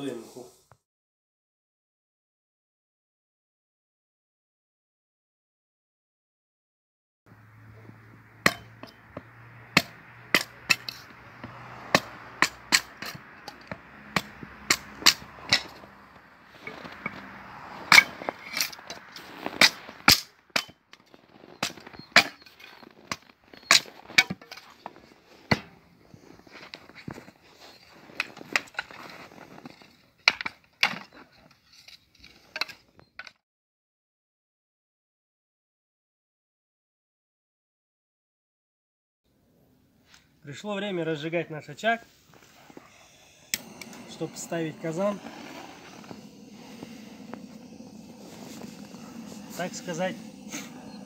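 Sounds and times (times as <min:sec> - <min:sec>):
axe chopping wood: 0:08.5 - 0:08.8, 0:09.7 - 0:10.9.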